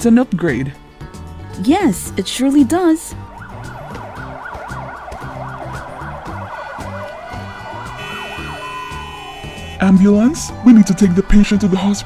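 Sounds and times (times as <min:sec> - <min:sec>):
ambulance siren: 0:03.2 - 0:12.0
background music with beat: 0:03.2 - 0:12.0.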